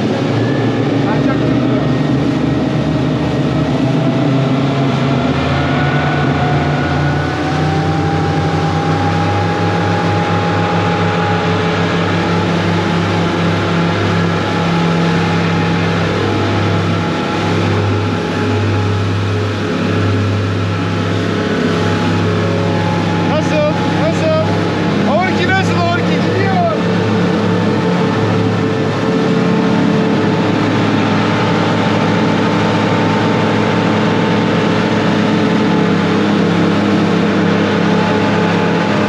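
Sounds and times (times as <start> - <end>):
motorboat engine running: 0.0 - 39.0.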